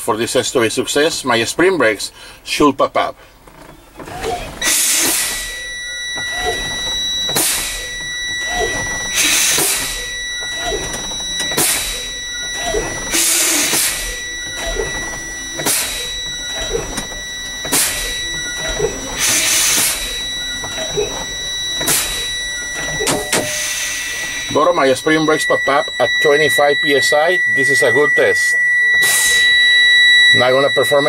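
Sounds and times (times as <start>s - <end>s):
low-air warning buzzer: 3.1s - 31.0s
air brakes hissing: 4.0s - 26.4s, 28.4s - 29.7s.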